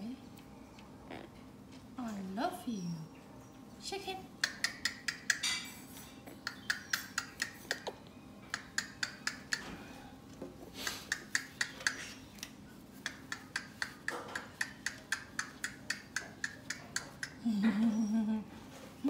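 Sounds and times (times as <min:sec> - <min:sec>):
parrot clicking: 0:04.4 - 0:05.5, 0:06.4 - 0:09.8, 0:11.0 - 0:17.4.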